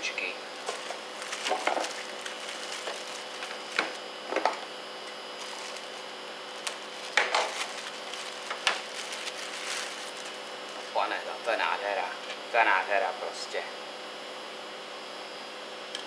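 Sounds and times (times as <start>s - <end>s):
plastic bag crinkling: 0.6s - 4.6s, 5.3s - 10.9s.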